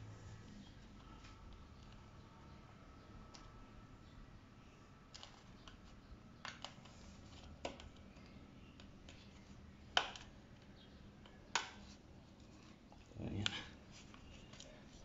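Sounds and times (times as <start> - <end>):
plastic parts clicking and snapping: 5.1 - 9.3, 9.9 - 11.9.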